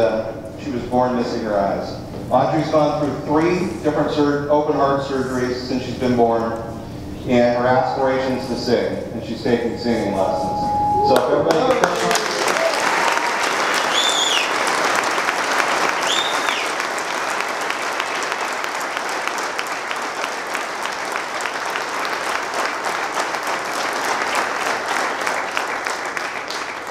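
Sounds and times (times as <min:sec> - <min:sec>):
whistles from crowd: 0:10.2 - 0:14.6, 0:16.0 - 0:16.8
audience applauding: 0:11.1 - 0:26.9.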